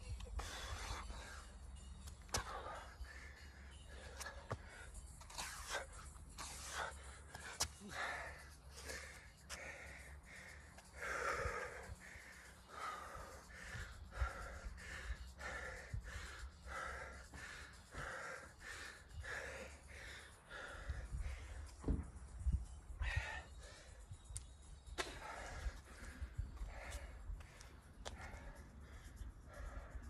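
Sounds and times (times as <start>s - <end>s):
man breathing hard: 0.0s - 24.3s, 25.0s - 30.0s
footsteps on concrete: 4.1s - 5.8s, 24.4s - 28.6s.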